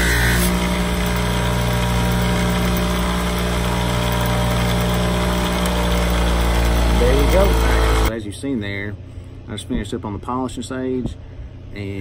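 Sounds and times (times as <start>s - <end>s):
bench buffer motor humming: 0.0s - 8.2s.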